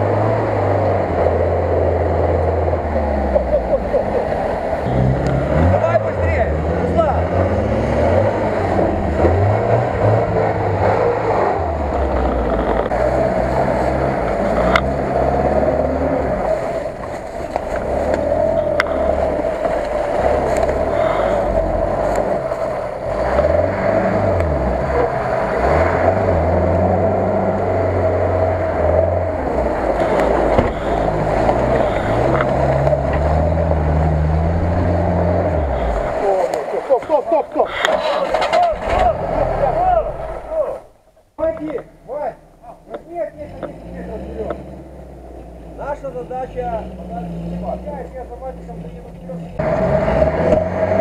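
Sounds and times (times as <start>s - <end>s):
off-road vehicle engines revving: 0.0s - 51.0s
vehicles grinding through mud: 0.0s - 51.0s.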